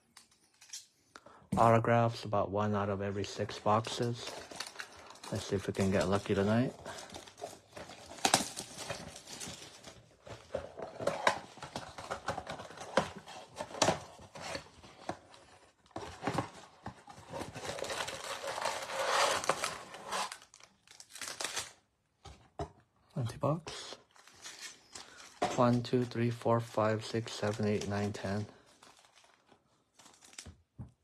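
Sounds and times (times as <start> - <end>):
plastic wrapper tearing and crinkling: 4.0 - 10.0, 17.4 - 21.8, 27.4 - 30.6
foil packs crinkling: 17.4 - 21.8, 27.4 - 30.5.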